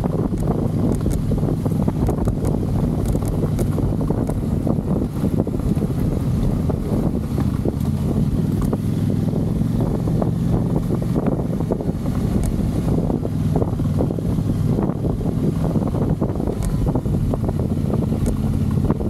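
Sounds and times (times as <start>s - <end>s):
motorcycle engine running: 0.0s - 19.0s
wind buffeting microphone: 0.0s - 19.0s.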